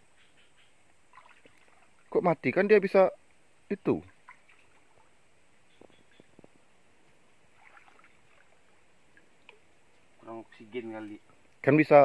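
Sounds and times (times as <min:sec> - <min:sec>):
water sloshing: 0:01.1 - 0:02.1, 0:04.1 - 0:05.2, 0:07.5 - 0:09.7.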